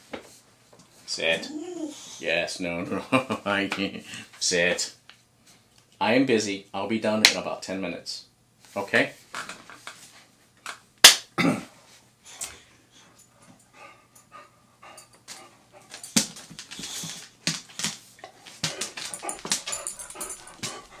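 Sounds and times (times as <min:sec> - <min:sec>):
dog whining: 0:01.3 - 0:02.2
dog panting: 0:13.6 - 0:17.3, 0:18.3 - 0:21.0.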